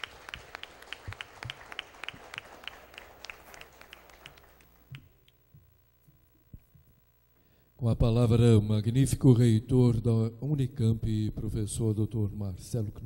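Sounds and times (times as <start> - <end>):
audience applauding: 0.0 - 5.0.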